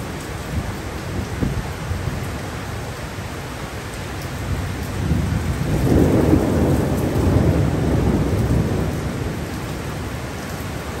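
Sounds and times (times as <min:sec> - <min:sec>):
heavy driving rain: 0:00.0 - 0:11.0
thunder rumbling: 0:05.0 - 0:11.0.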